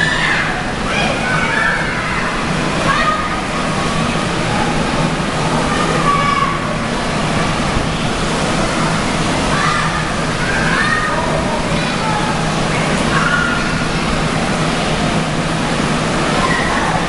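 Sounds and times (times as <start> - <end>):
water rushing: 0.0 - 17.0.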